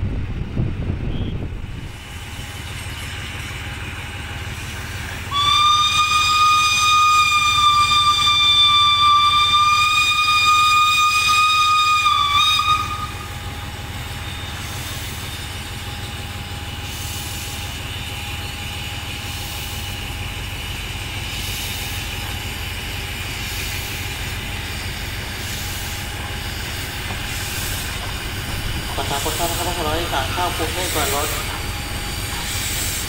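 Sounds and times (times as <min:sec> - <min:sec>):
steam hissing: 0:01.6 - 0:33.0
steam locomotive whistle: 0:05.3 - 0:14.8.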